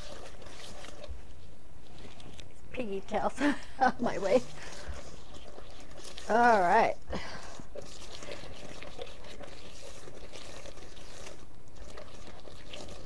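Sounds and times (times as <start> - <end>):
whisk scraping in a bowl: 0.0 - 2.4, 3.9 - 13.0.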